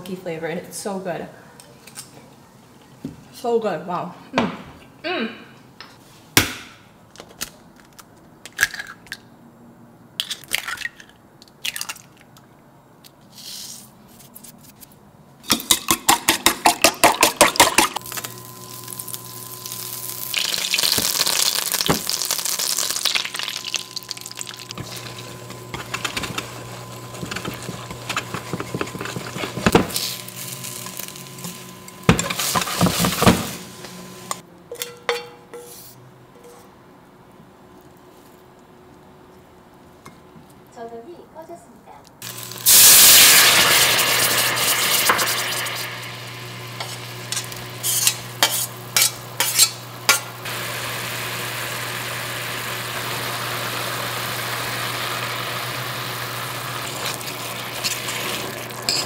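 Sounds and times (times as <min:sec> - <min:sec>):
induction hob hum: 0:16.6 - 0:35.6, 0:42.2 - 0:59.0
butter sizzling in a wok: 0:17.7 - 0:34.4, 0:42.2 - 0:59.0.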